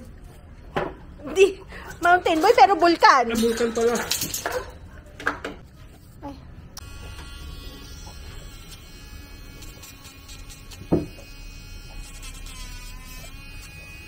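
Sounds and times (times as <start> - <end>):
pet nail grinder whining: 6.8 - 14.0.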